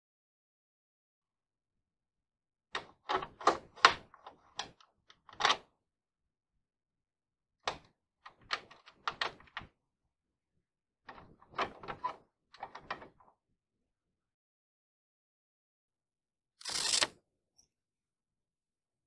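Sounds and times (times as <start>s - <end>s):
door lock clicks and clunks: 2.8s - 5.6s.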